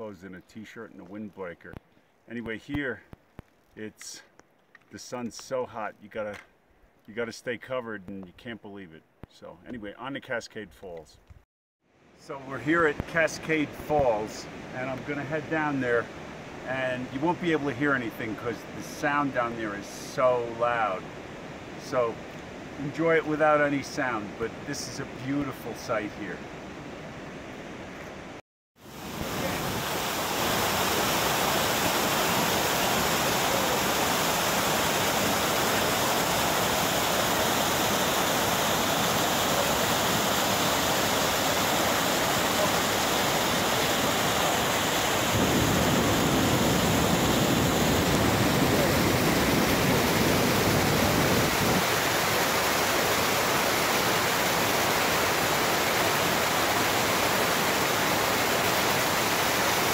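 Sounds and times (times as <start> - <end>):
waterfall rushing: 28.8 - 59.9.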